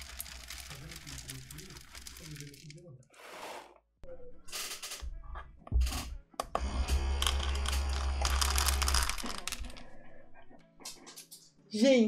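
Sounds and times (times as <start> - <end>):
dry kibble rattling: 0.0 - 2.8, 8.2 - 9.9
pet feeder motor humming: 6.6 - 9.6.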